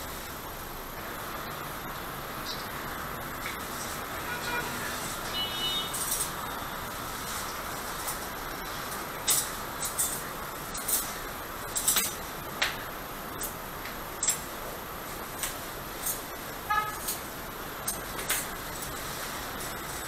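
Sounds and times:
metal instruments clicking: 5.9 - 6.5, 8.0 - 12.3, 14.2 - 14.5.

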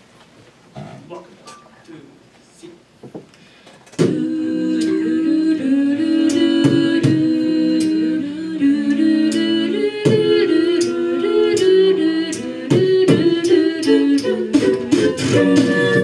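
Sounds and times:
a cappella group humming chords: 3.8 - 16.0.

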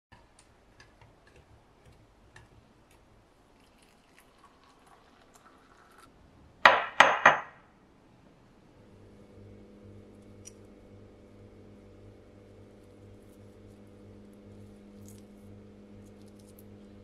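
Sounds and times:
liquid pouring into glass: 3.5 - 6.1.

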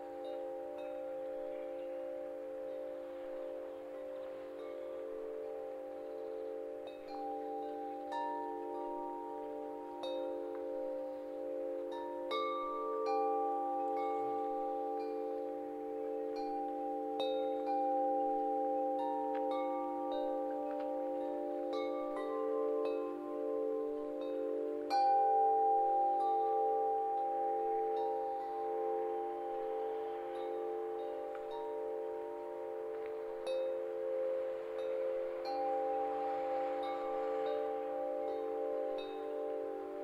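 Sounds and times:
wind chimes ringing: 0.0 - 40.0.

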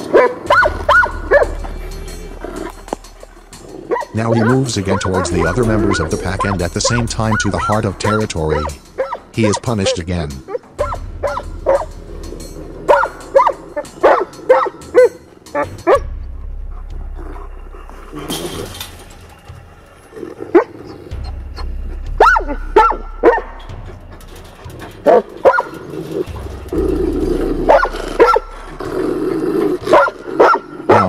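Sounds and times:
large dogs barking: 0.0 - 16.1, 20.1 - 31.0.

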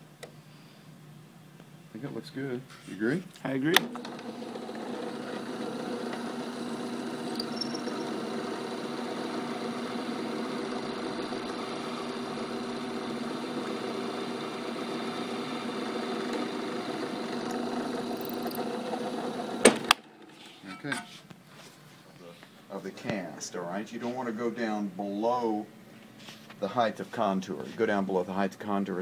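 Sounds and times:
drill press motor running: 3.8 - 20.4
drill bit boring into stone: 3.9 - 19.7.

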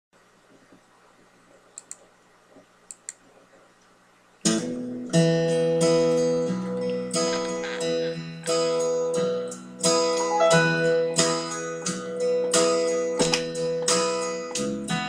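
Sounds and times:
faint clicks: 1.7 - 3.2
acoustic guitar strumming chords: 4.5 - 15.0.

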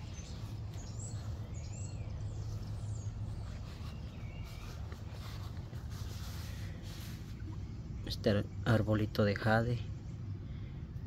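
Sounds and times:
birds chirping and whistling: 0.0 - 8.8
steady low rumble: 0.0 - 11.0.

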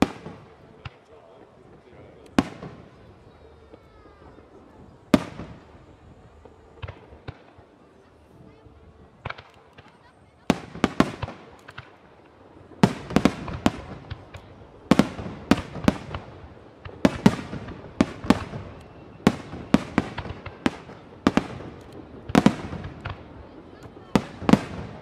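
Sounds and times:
firework shells bursting: 9.1 - 25.0.

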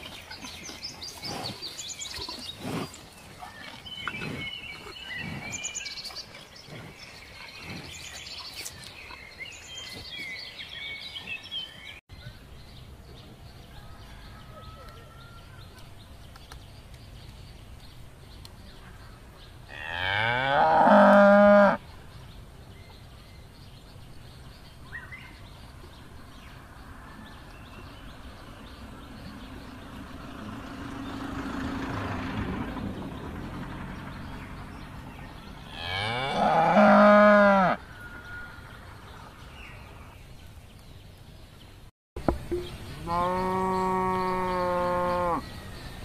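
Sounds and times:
cow mooing: 19.7 - 21.8, 35.7 - 37.8, 43.0 - 45.4.

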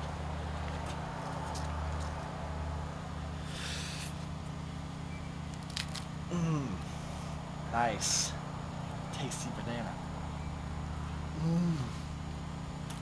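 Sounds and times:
low background hum: 0.0 - 13.0
banana peel tearing: 5.5 - 6.1
person grunting: 6.3 - 6.9, 11.4 - 12.0.

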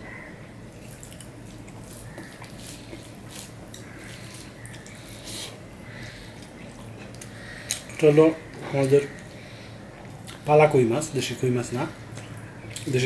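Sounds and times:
mouth chewing: 0.8 - 9.3.

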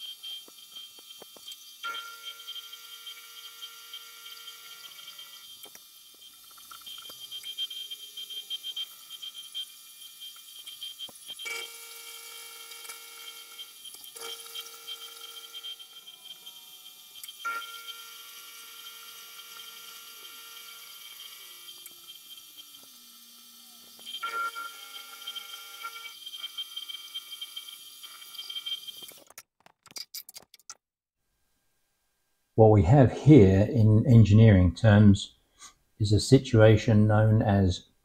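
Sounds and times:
milling machine spindle whining: 0.0 - 29.3
cutter cutting metal: 0.0 - 29.4.

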